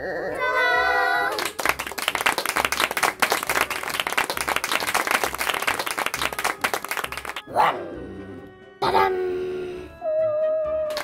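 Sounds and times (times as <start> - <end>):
group clapping in applause: 1.3 - 7.4.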